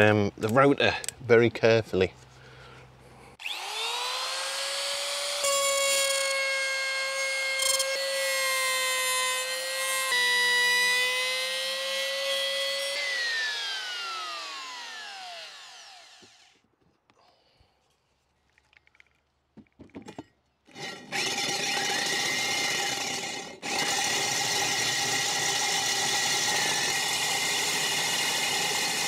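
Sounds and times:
trim router motor whining: 3.4s - 16.6s, 20.7s - 29.0s.

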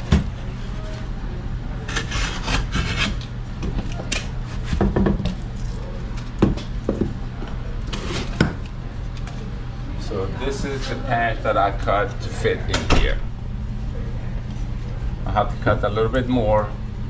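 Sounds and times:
knife scratching drywall: 1.9s - 3.3s.

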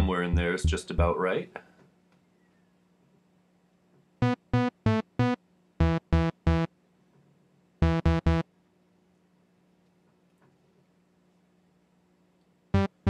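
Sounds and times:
staccato synthesizer notes: 4.2s - 6.7s, 7.8s - 8.4s, 12.8s - 13.0s.

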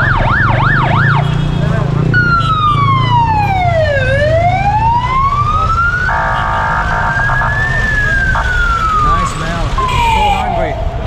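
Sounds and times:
emergency vehicle siren wailing: 0.0s - 1.4s, 2.0s - 11.0s
traffic rumble: 0.0s - 11.0s
vehicle horn: 1.0s - 2.8s, 6.1s - 7.6s.

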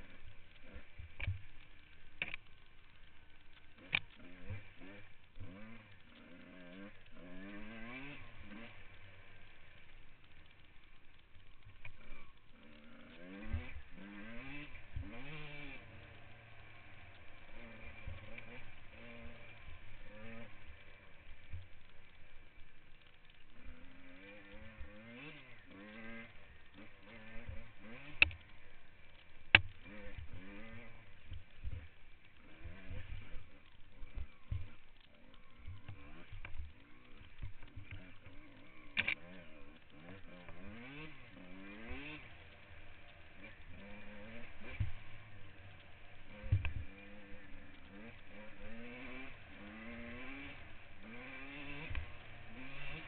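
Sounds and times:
dirt bike engine revving: 0.0s - 53.0s.

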